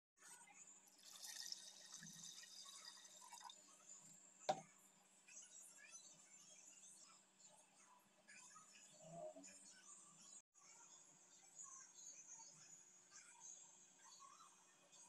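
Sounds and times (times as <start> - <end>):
water trickling into a pot: 0.9 - 4.6.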